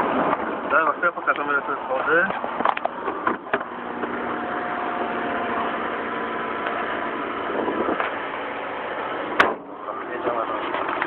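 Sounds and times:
engine running at low revs: 0:02.4 - 0:11.0.

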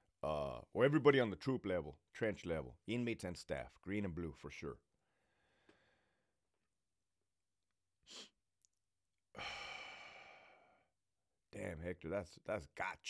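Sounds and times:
man breathing in: 0:05.0 - 0:06.4, 0:09.3 - 0:10.9
man sighing: 0:09.3 - 0:10.8.

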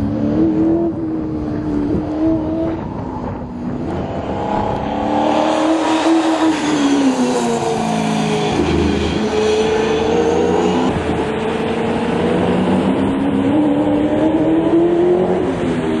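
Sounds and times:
race car engine running hard: 0:00.0 - 0:16.0.

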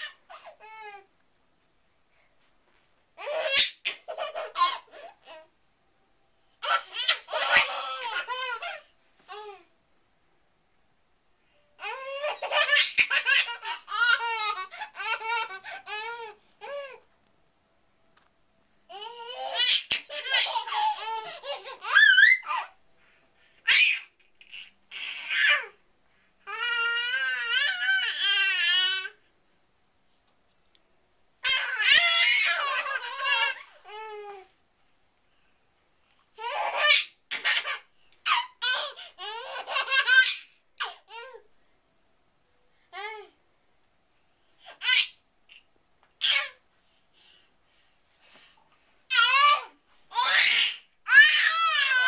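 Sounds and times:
babies laughing and giggling: 0:03.2 - 0:05.5, 0:06.6 - 0:09.6, 0:11.8 - 0:17.0, 0:18.9 - 0:22.8, 0:31.4 - 0:34.3, 0:36.4 - 0:41.3, 0:49.1 - 0:52.0.

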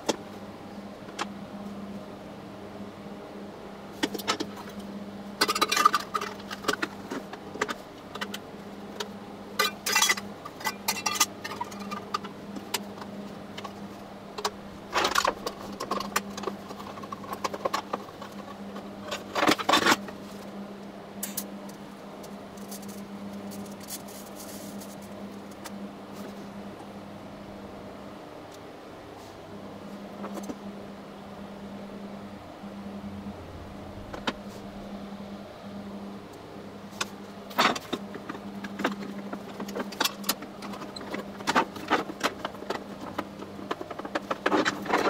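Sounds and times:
steady low hum: 0:00.0 - 0:45.0
small metal parts clinking: 0:09.6 - 0:12.0.

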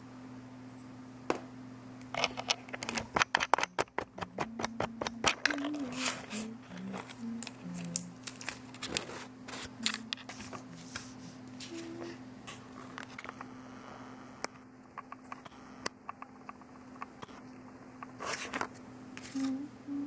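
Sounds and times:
steady low hum: 0:00.0 - 0:20.0
scratches and clicks of painting materials: 0:02.1 - 0:13.5, 0:14.9 - 0:19.6
paper rustling: 0:05.5 - 0:11.9, 0:18.2 - 0:19.5.

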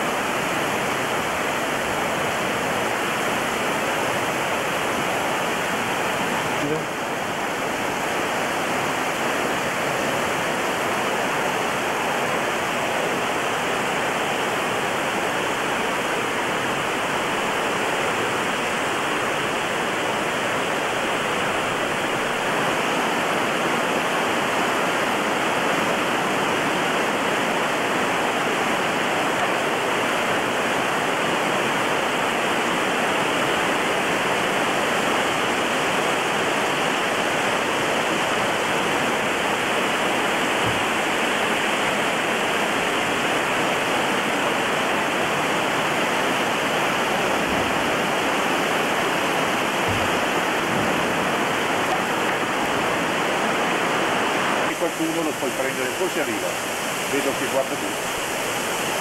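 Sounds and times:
river water rushing over rocks: 0:00.0 - 0:59.0
faint low knocks: 0:49.8 - 0:51.2.

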